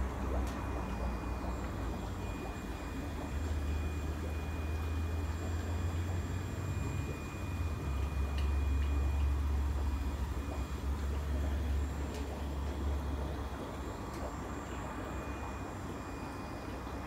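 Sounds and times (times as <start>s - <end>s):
aquarium equipment rumbling: 0.0s - 17.0s.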